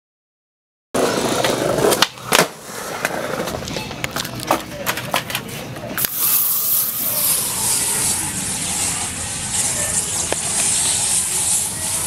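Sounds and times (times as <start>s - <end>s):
aerosol can spraying: 6.0s - 7.8s.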